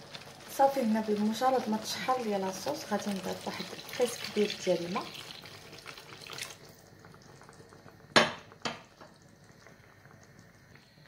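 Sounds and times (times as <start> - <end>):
water pouring into sauce: 2.5 - 7.8.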